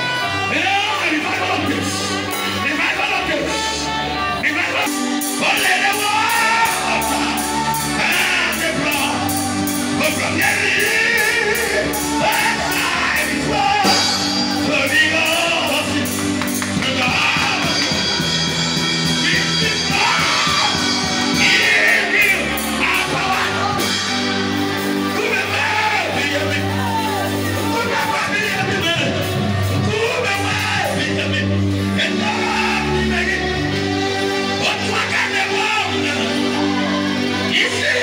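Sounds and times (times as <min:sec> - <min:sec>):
man singing into microphone: 0:00.0 - 0:16.2, 0:19.3 - 0:23.9
church praise music: 0:00.0 - 0:38.0.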